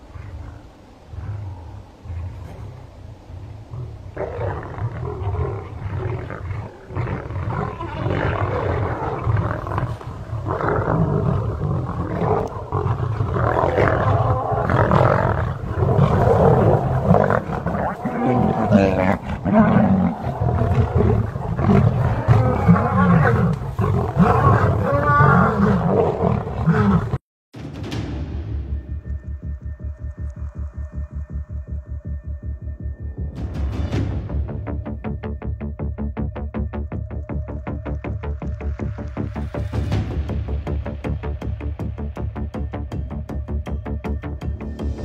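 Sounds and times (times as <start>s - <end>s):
lions roaring: 0.1s - 27.2s.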